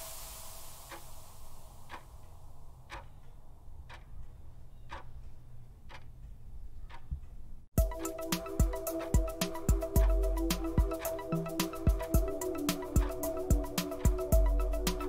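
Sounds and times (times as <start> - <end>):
countdown timer ticking: 7.8 - 15.0.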